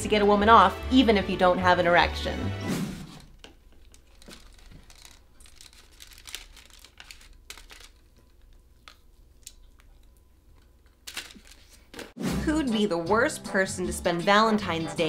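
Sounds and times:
packaging crinkling and rustling: 0:03.2 - 0:11.9.

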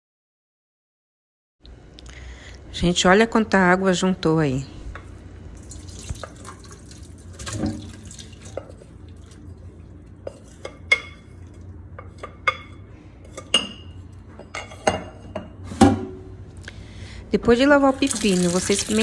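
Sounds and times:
water splashing into colander: 0:05.6 - 0:09.4, 0:17.9 - 0:19.0.

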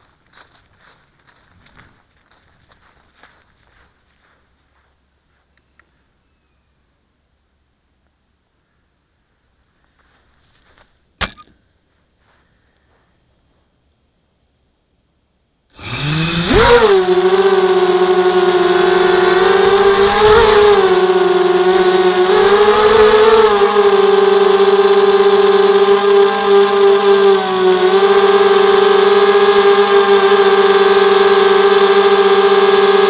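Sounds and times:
quadcopter motors whining: 0:15.7 - 0:33.0.

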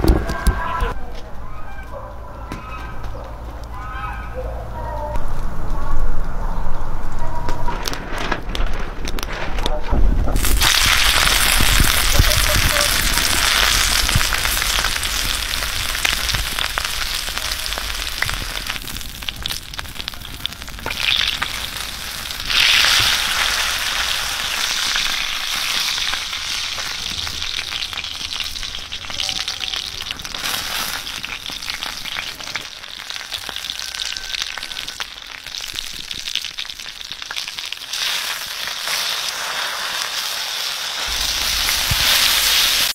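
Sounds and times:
meat sizzling and spitting: 0:10.4 - 0:42.9.

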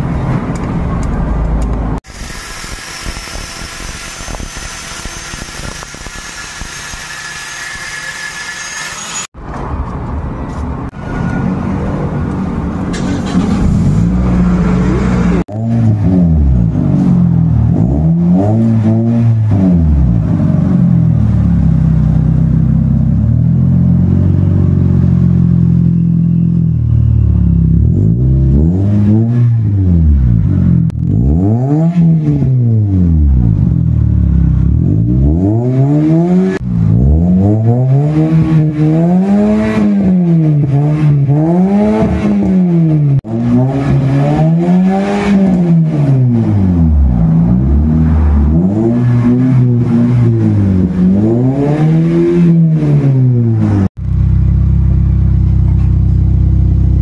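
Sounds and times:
car engine revving: 0:11.9 - 0:25.4, 0:27.6 - 0:55.7.

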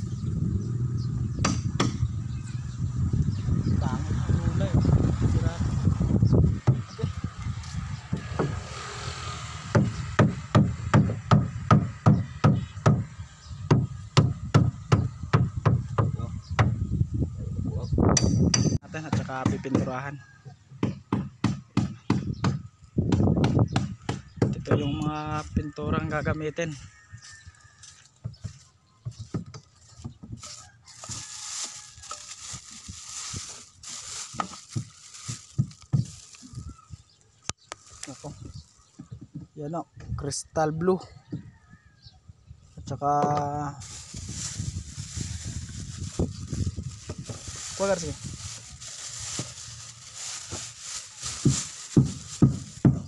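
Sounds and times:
rustling hiss: 0:43.8 - 0:52.9.

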